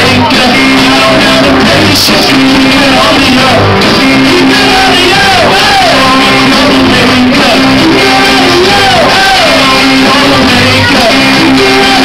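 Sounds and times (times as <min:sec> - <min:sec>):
bass: 0:00.0 - 0:12.0
drums: 0:00.0 - 0:12.0
electric guitars: 0:00.0 - 0:12.0.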